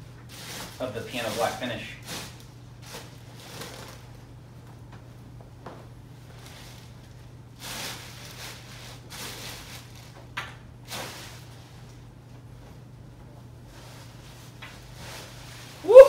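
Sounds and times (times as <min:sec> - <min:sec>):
plastic bag rustling and sliding: 0:00.2 - 0:04.3, 0:06.3 - 0:10.2, 0:10.8 - 0:12.1, 0:13.6 - 0:15.8.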